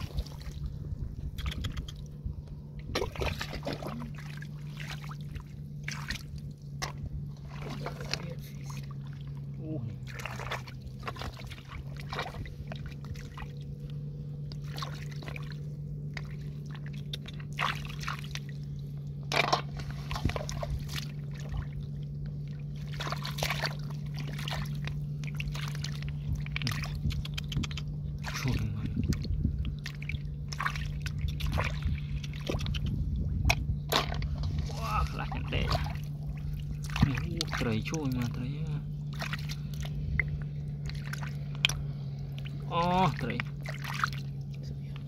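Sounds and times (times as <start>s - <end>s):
steady low hum: 0.0s - 45.0s
hands splashing in shallow water: 2.9s - 8.3s, 10.0s - 13.6s, 14.5s - 18.6s, 22.4s - 38.3s, 39.0s - 45.0s.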